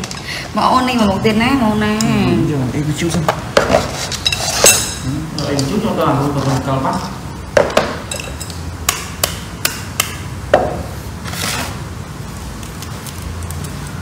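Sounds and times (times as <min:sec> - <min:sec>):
dishes knocking and clinking: 0:07.5 - 0:10.9.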